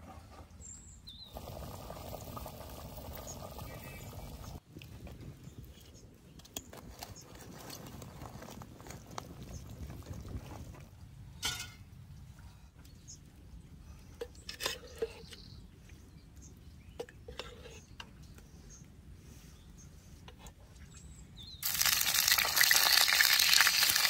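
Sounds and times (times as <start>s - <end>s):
metal cookware clinking: 11.4s - 11.8s.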